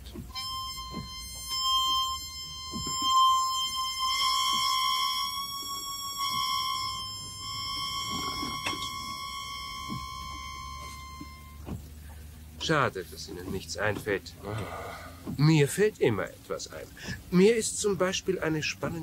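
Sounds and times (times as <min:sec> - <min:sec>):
harmonica high reedy note: 0:00.0 - 0:12.9.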